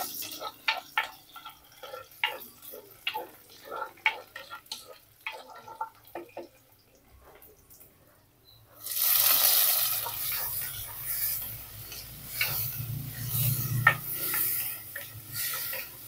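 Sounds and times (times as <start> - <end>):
spatula scraping a pot: 0.0 - 6.6, 9.8 - 16.0
food sizzling in hot oil: 0.0 - 6.8, 8.8 - 16.0.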